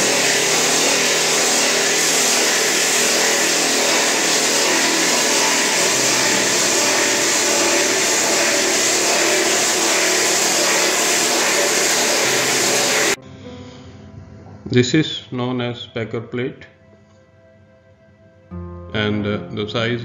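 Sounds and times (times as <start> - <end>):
hydraulic drill rig drilling rock: 0.0 - 13.2.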